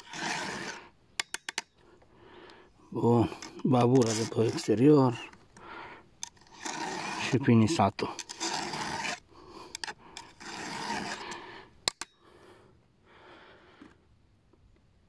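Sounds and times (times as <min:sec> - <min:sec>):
file rasping on chain: 0:00.0 - 0:01.6, 0:03.4 - 0:05.3, 0:06.2 - 0:12.1.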